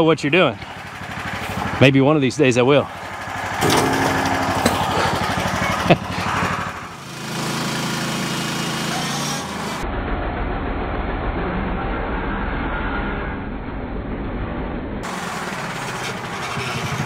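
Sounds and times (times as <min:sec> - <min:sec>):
small engine running: 0:00.5 - 0:09.8, 0:15.0 - 0:17.0.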